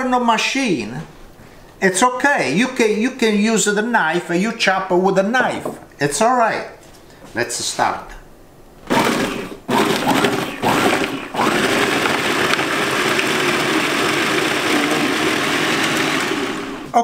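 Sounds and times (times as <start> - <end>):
food processor motor: 8.9 - 17.0.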